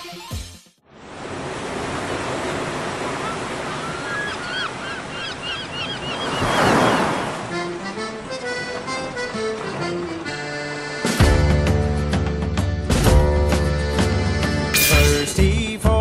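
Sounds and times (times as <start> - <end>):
surf washing: 0.9 - 11.2
wave breaking: 1.0 - 5.2, 5.8 - 10.9
gulls crying: 2.0 - 11.7
accordion-led music: 7.4 - 15.7.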